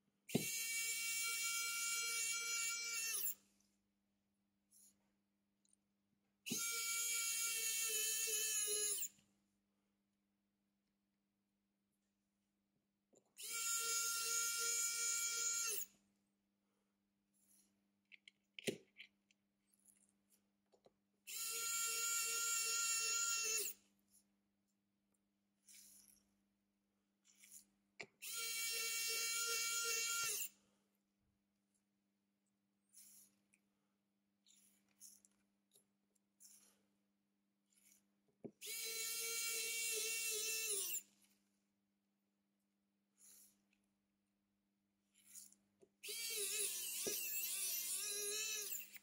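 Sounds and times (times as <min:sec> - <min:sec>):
electric screwdriver whining: 0:06.5 - 0:09.1, 0:21.3 - 0:23.8, 0:28.2 - 0:30.6, 0:38.6 - 0:41.1, 0:46.0 - 0:49.0
electric screwdriver whirring: 0:38.6 - 0:41.1, 0:46.0 - 0:49.0.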